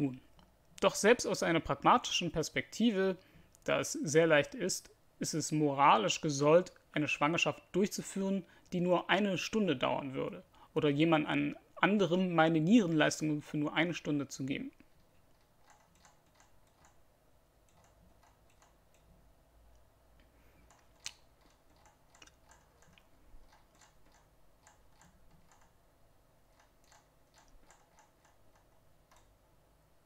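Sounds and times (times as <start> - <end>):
computer mouse clicks: 14.8 - 17.0, 17.6 - 19.1, 20.6 - 25.8, 26.5 - 29.4.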